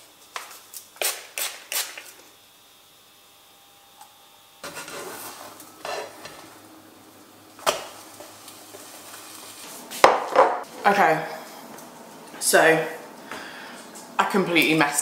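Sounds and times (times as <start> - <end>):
batter sizzling in a frying pan: 4.6 - 10.4.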